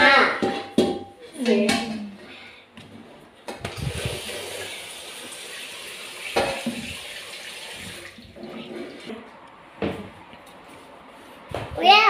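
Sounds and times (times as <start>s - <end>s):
running water hiss: 3.9s - 8.2s.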